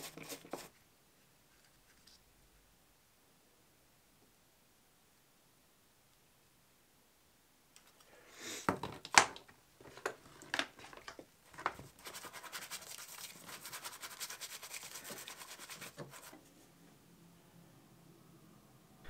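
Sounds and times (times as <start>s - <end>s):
brush scrubbing: 0.0s - 0.7s, 11.9s - 16.4s.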